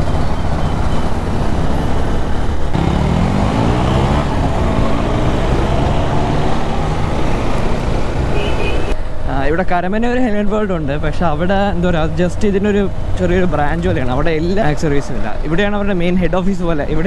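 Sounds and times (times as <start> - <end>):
motorcycle engine accelerating: 0.0 - 8.4
city traffic: 0.0 - 17.0.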